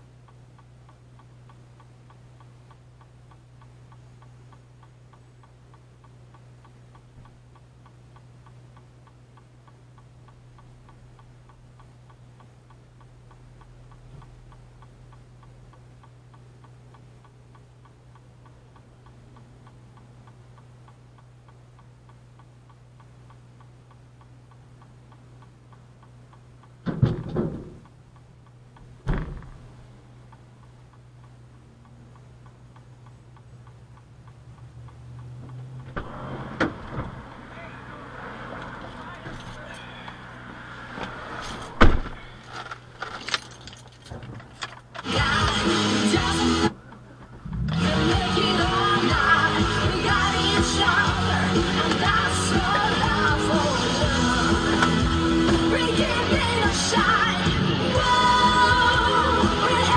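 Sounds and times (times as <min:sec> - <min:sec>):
constant low hum: 0:00.0 - 0:59.9
regular ticking: 0:00.0 - 0:59.9
loud thumps: 0:26.8 - 0:27.8, 0:29.0 - 0:29.7, 0:41.6 - 0:42.3, 0:47.2 - 0:47.9.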